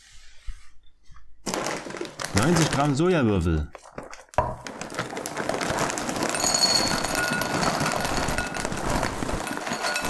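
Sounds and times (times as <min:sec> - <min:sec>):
soy chunks rattling into glass bowl: 0:01.4 - 0:03.0, 0:03.7 - 0:10.0
plastic bag crinkling: 0:01.4 - 0:10.0.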